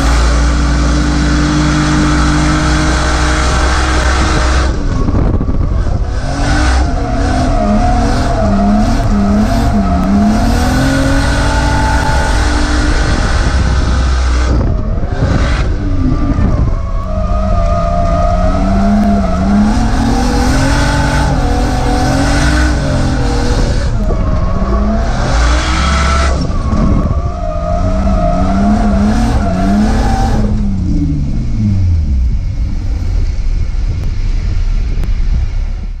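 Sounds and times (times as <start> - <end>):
car engine revving: 0.0 - 36.0
tyre squeal: 15.1 - 30.7.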